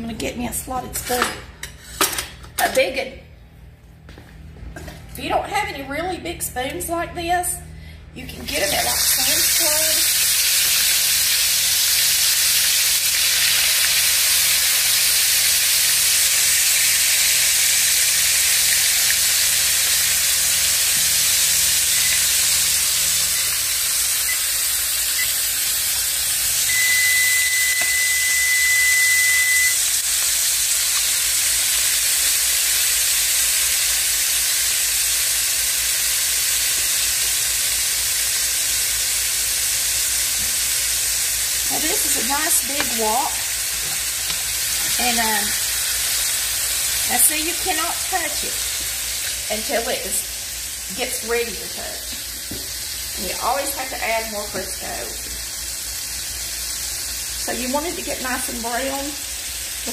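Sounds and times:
food sizzling in oil: 8.5s - 59.9s
electronic beep: 26.7s - 29.8s.

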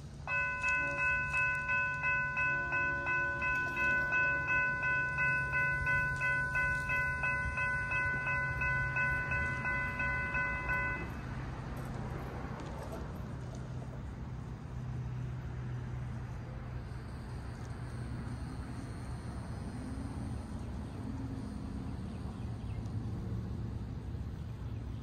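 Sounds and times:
crossing warning bell ringing: 0.0s - 11.9s.

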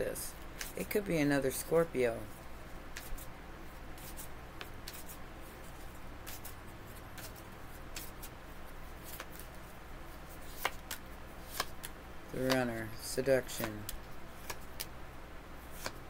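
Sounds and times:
cards being shuffled: 2.9s - 3.3s, 4.0s - 6.6s, 7.2s - 8.4s, 9.0s - 9.7s, 10.3s - 14.9s, 15.7s - 16.0s.

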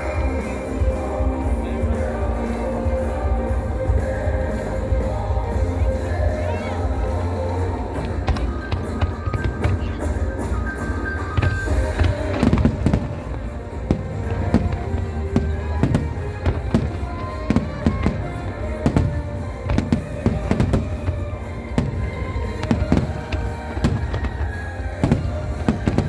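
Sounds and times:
music playing: 0.0s - 26.0s
fireworks bursting: 6.4s - 26.0s.

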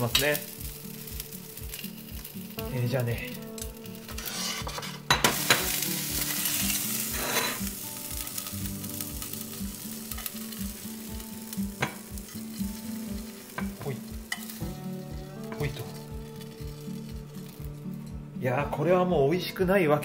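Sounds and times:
sausages sizzling in frying pan: 0.0s - 18.4s
tongs clicking on pan and plate: 9.2s - 10.8s, 11.8s - 14.7s.

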